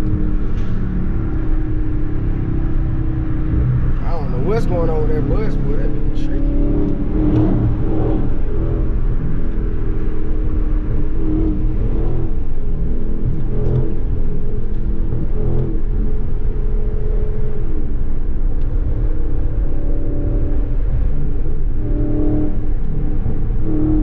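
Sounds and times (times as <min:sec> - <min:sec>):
car engine cruising: 0:00.0 - 0:24.0
road noise: 0:00.0 - 0:24.0.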